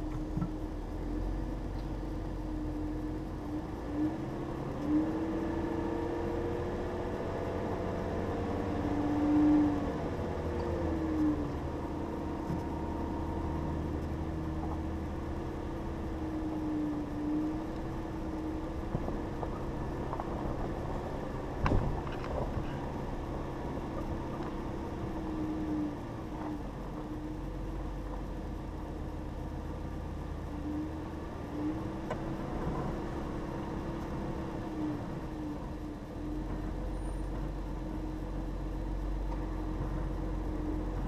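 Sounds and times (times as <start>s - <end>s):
car engine hum: 0.0s - 41.0s
tyres rumbling on gravel: 17.6s - 27.0s.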